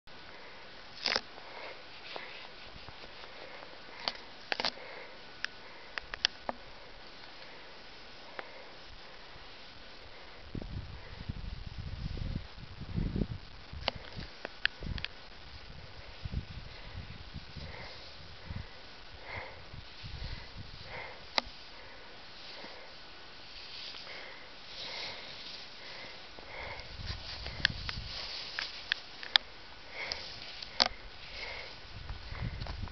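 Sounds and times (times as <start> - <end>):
faint steady hiss: 0.1 - 32.9
soft sniff: 1.4 - 5.9, 16.0 - 28.9
person breathing through nose: 3.2 - 6.0, 15.8 - 23.0, 23.6 - 28.6, 29.8 - 32.7
sharp clicks: 5.4 - 6.6
wind buffeting microphone: 10.1 - 21.3, 26.5 - 28.4, 30.8 - 32.9.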